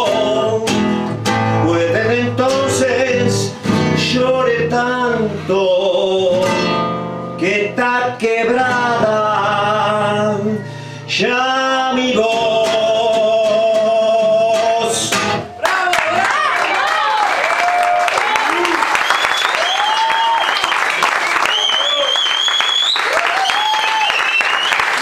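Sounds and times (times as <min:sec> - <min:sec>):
man singing: 0:00.0 - 0:16.3
acoustic guitar: 0:00.0 - 0:16.8.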